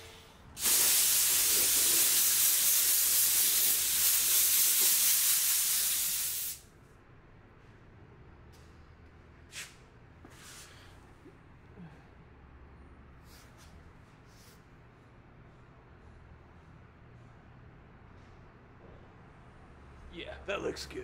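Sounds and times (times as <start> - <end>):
compressed air hissing from hose: 0.6 - 6.6.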